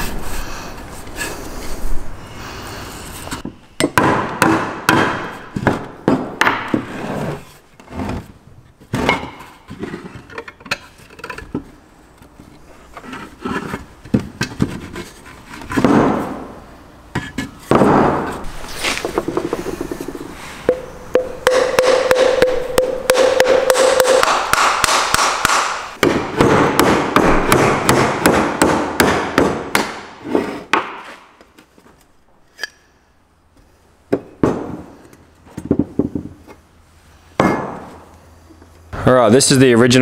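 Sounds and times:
mallet beating on metal shell: 0:20.7 - 0:25.7.

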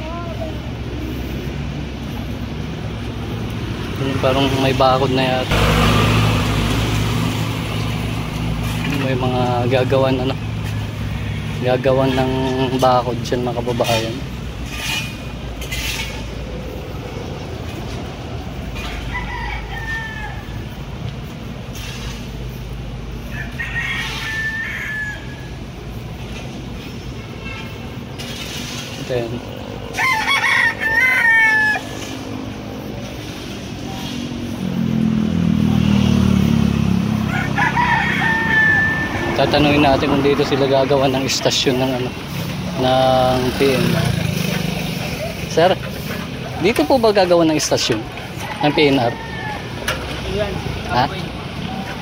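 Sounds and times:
city traffic rumble: 0:00.0 - 0:52.0
roosters crowing: 0:03.0 - 0:15.0, 0:18.4 - 0:21.4, 0:22.5 - 0:26.0, 0:29.2 - 0:52.0
rooster crowing: 0:18.8 - 0:20.8, 0:23.2 - 0:25.6, 0:29.9 - 0:32.3, 0:37.0 - 0:40.5, 0:47.8 - 0:50.2.

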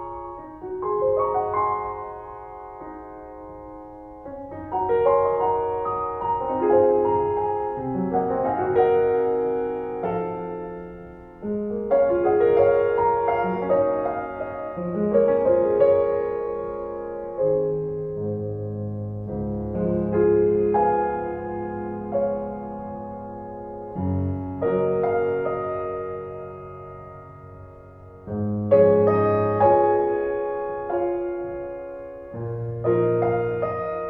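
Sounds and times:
piano music: 0:00.0 - 0:34.0.

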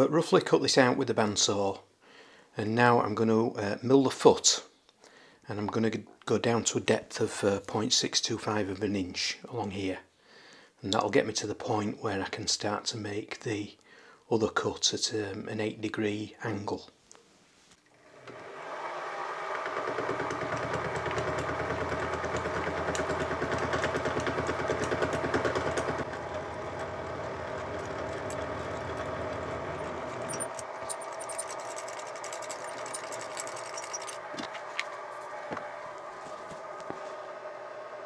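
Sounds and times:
milling machine motor whine: 0:18.0 - 0:38.0
mill cutting chatter: 0:19.6 - 0:37.4.

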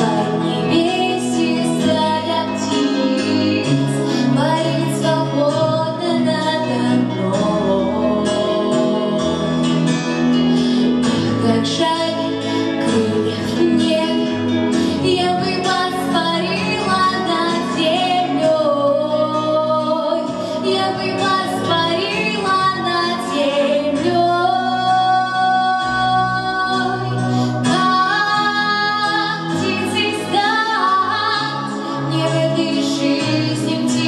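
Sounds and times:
woman singing: 0:00.0 - 0:10.1, 0:11.1 - 0:34.0.

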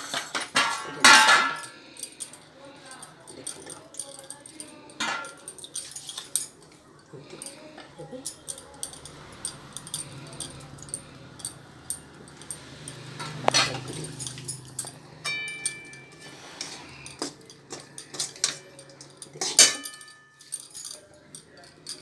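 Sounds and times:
bangles clinking and jingling: 0:00.0 - 0:22.0
short metallic ring: 0:09.4 - 0:16.3.

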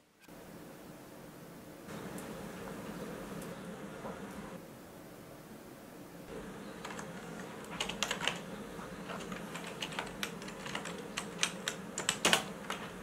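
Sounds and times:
faint low hum: 0:00.0 - 0:13.0
keyboard keys clicking: 0:06.8 - 0:13.0.

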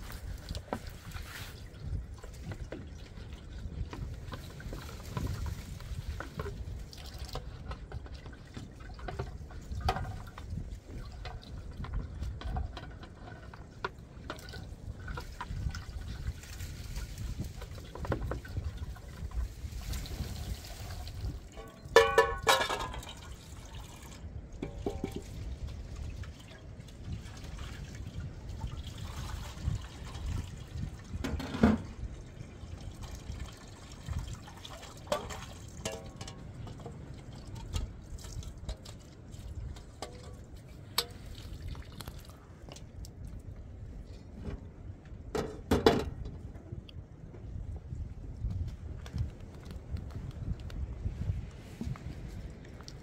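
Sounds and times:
water pouring and trickling: 0:00.0 - 0:45.2, 0:46.9 - 0:53.0
metal pots clinking: 0:21.5 - 0:23.3, 0:24.6 - 0:25.3, 0:35.2 - 0:36.6.

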